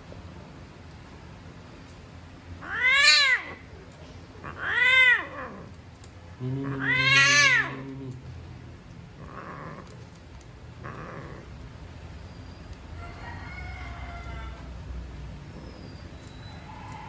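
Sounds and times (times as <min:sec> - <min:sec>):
cat yowling: 0:02.6 - 0:03.7, 0:04.4 - 0:05.8, 0:06.6 - 0:08.0, 0:10.8 - 0:11.5
cat moaning low: 0:04.4 - 0:08.4, 0:09.2 - 0:10.0, 0:10.8 - 0:11.6.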